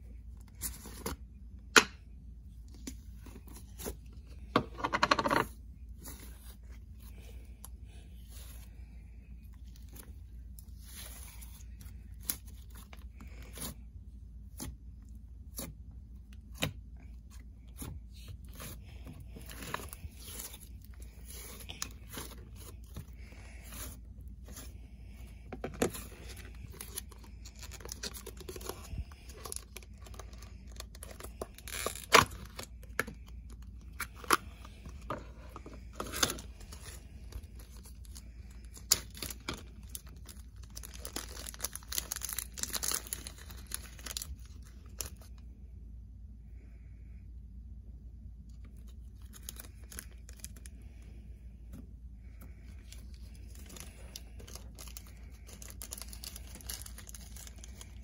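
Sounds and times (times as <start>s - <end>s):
plastic bag crinkling: 35.9s - 45.3s, 52.9s - 58.0s.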